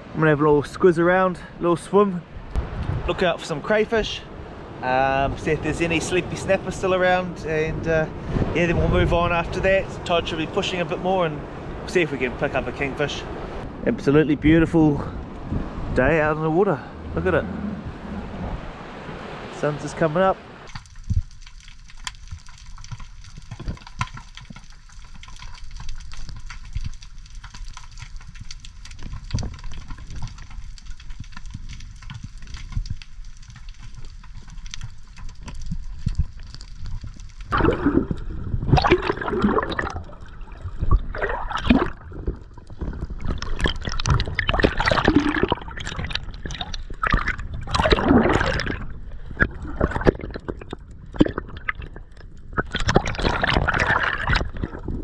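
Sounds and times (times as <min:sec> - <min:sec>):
muffled underwater water movement: 0:15.1 - 0:55.0
gurgling bubbles: 0:34.4 - 0:55.0.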